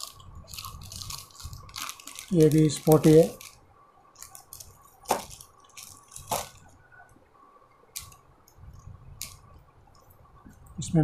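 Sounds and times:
plastic packaging crinkling: 0:00.0 - 0:06.8, 0:07.9 - 0:09.6.

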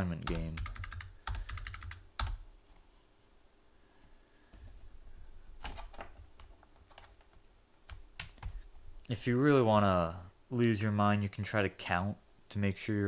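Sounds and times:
computer keyboard keystrokes: 0:00.2 - 0:02.4, 0:05.6 - 0:08.6.

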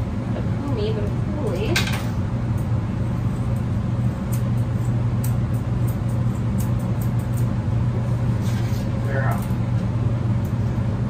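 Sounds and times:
grooming shears snipping: 0:03.4 - 0:07.6.

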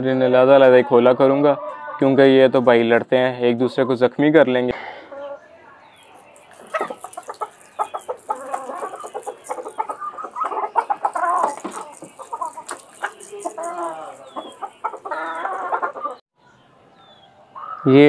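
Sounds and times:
chickens clucking: 0:03.5 - 0:16.2.

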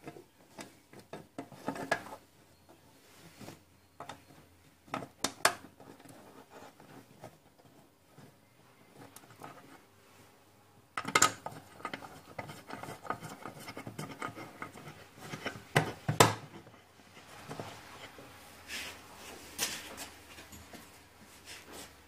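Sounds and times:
scraping and clinking handling: 0:19.5 - 0:21.7.

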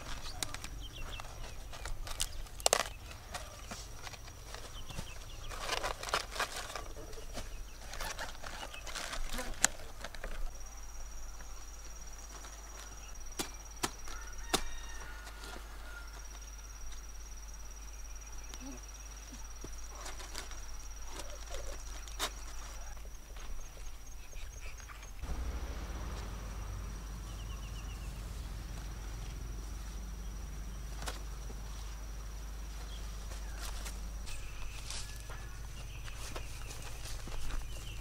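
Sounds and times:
cabbage leaves rustling: 0:00.0 - 0:10.7, 0:18.6 - 0:38.0.

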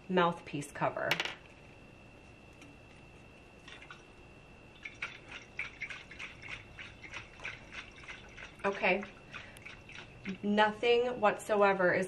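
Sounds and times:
water sloshing in metal bottle: 0:03.6 - 0:04.1, 0:04.7 - 0:10.6.

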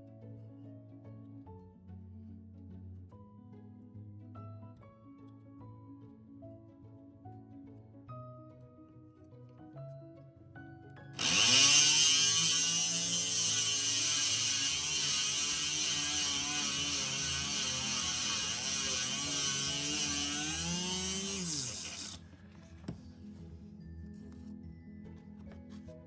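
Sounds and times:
rotary tool grinding glass: 0:11.2 - 0:22.3.

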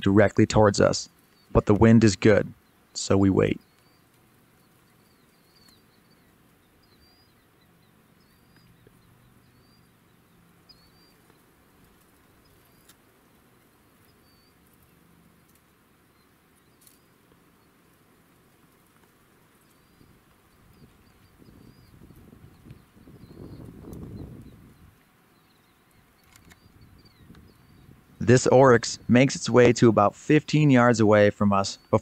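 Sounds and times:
small bird chirping: 0:00.0 - 0:30.9
faint clicks: 0:03.6 - 0:06.2, 0:14.1 - 0:15.7, 0:25.8 - 0:27.5.

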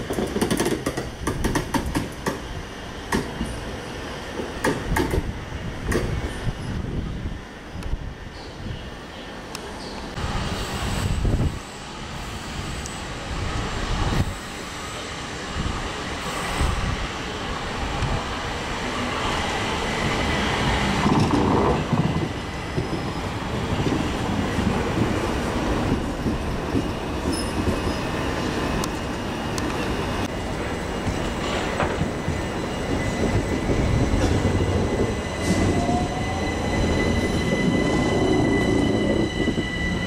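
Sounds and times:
train wheels rumbling over track: 0:00.0 - 0:40.0
high wheel squeal: 0:27.2 - 0:28.5, 0:32.3 - 0:40.0.

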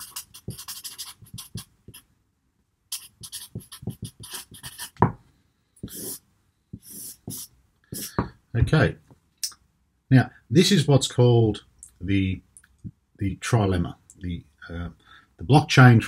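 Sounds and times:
marker scratching on paper: 0:00.0 - 0:02.1, 0:02.9 - 0:05.2, 0:05.8 - 0:06.2, 0:06.8 - 0:08.3.

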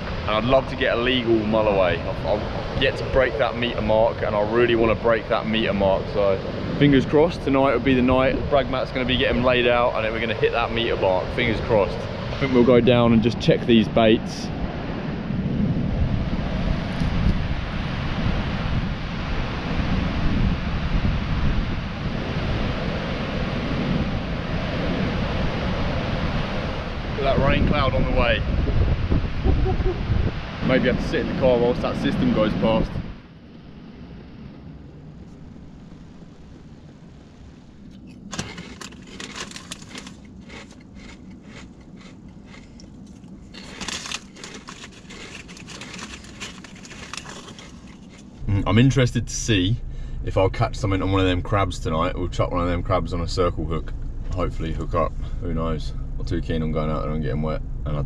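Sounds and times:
rough surf breaking: 0:00.0 - 0:57.2
steady low rumble: 0:00.0 - 0:58.0
wind buffeting microphone: 0:00.0 - 0:58.0
crunchy snack being chewed: 0:38.3 - 0:48.4.

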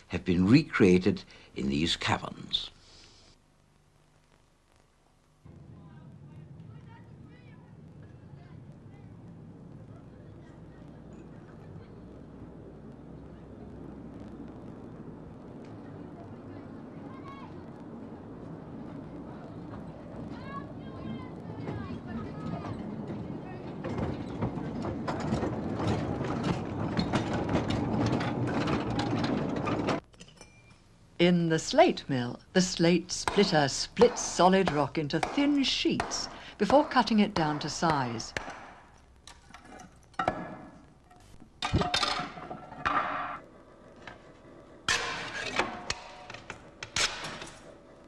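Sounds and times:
crackling and scraping: 0:02.9 - 0:31.0, 0:33.2 - 0:48.0
train rattling along rails: 0:18.4 - 0:30.0
sharp knocks on slate: 0:33.3 - 0:38.8.

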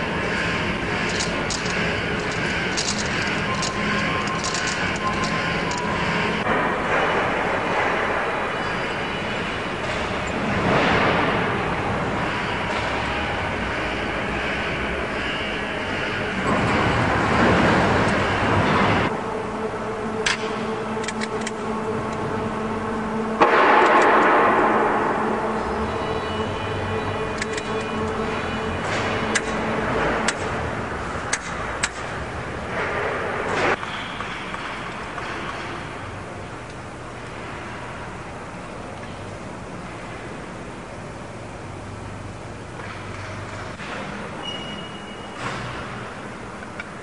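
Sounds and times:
machinery roar: 0:00.0 - 0:47.0
workshop noise: 0:00.0 - 0:47.0
wrench metallic clicks: 0:01.0 - 0:06.1, 0:20.2 - 0:21.6, 0:27.3 - 0:28.2.

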